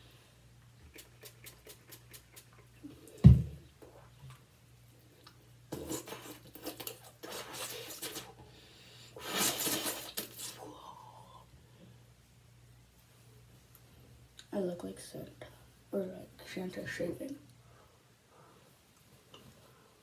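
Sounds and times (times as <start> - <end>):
hands scrubbing face: 0.9 - 2.7
heavy thump: 3.2 - 3.6.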